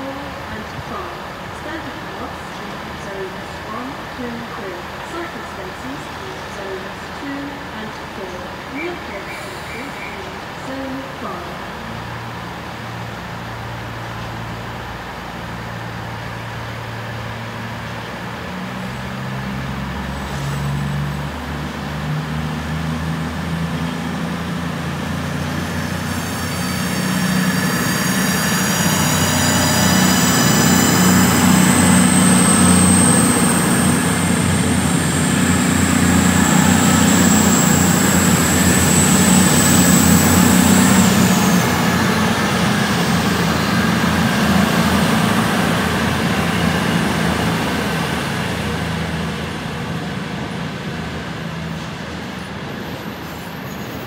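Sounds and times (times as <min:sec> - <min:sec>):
diesel train engines humming: 0:00.0 - 0:54.0
high whine rising in pitch: 0:19.2 - 0:52.0.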